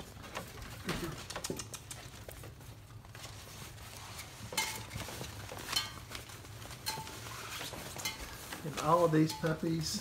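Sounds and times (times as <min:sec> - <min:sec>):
claws clicking on tile floor: 0:00.0 - 0:02.8.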